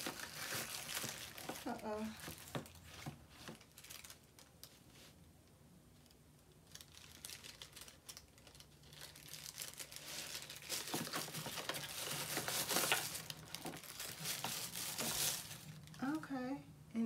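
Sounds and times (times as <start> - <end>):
packaging crinkling: 0.0 - 5.1, 6.1 - 16.1.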